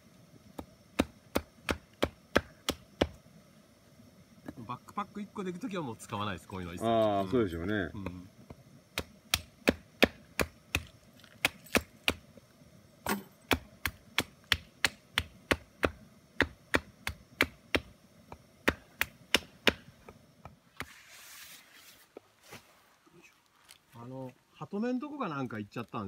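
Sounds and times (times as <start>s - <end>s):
hatchet chopping wood: 0.6s - 3.2s, 9.0s - 12.2s, 13.1s - 20.9s.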